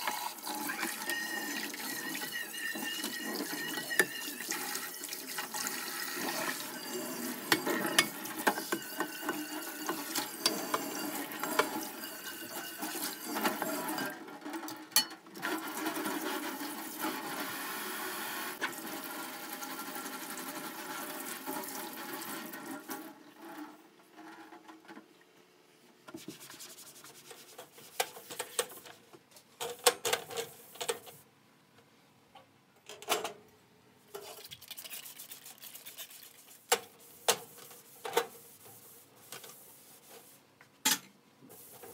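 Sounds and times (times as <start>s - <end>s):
frying pan being scrubbed: 0.0s - 14.2s, 26.2s - 28.9s, 34.2s - 40.5s, 41.5s - 41.9s
cloth rinsed and wrung: 34.1s - 36.7s.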